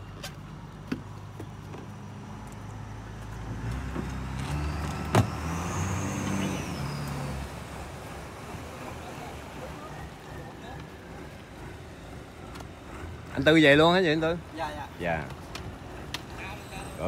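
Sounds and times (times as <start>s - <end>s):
boat engine idling: 7.4s - 17.0s.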